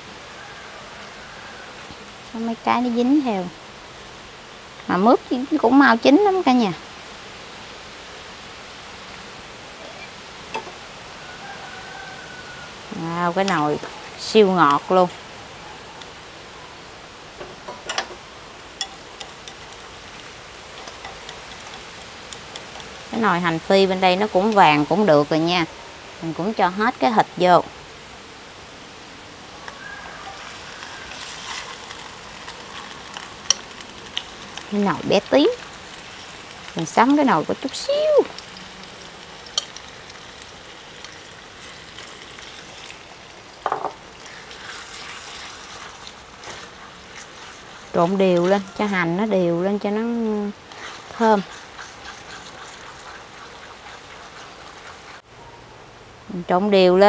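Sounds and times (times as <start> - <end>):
shallots sizzling in oil: 0.0 - 55.3
crackles and clicks: 18.8 - 24.8, 29.6 - 43.6
utensil scraping clay pot: 43.7 - 55.2.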